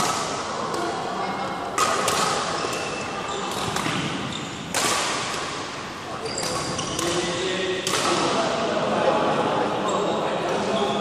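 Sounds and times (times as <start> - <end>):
rackets hitting shuttlecock: 0.0 - 8.5
players' voices: 0.1 - 11.0.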